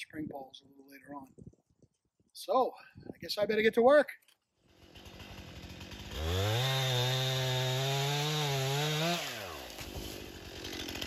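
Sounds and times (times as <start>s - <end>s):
chainsaw cutting wood: 4.6s - 11.0s
chainsaw idling and revving: 4.6s - 11.0s.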